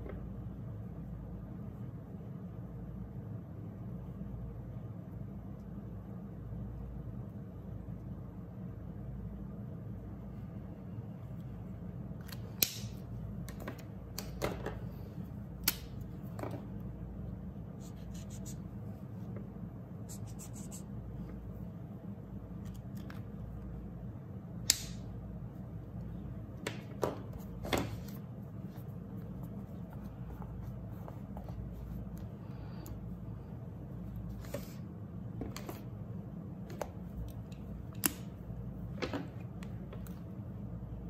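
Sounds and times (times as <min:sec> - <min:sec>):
low steady hum: 0:00.0 - 0:41.0
marker tips scratching on paper: 0:17.8 - 0:18.7, 0:20.1 - 0:20.9.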